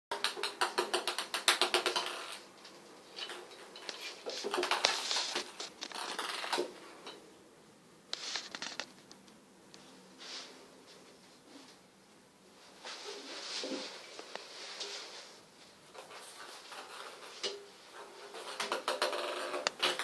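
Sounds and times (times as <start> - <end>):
ping-pong ball bouncing in bathtub: 0.1 - 2.3.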